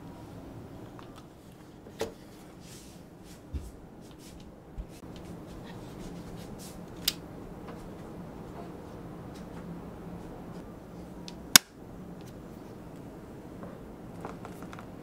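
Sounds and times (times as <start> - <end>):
hands rubbing and rustling: 2.3 - 7.1.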